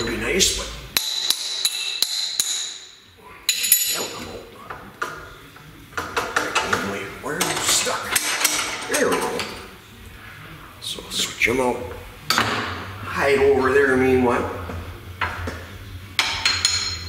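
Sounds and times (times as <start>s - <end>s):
steel parts clinking: 1.0s - 4.3s, 16.2s - 17.0s.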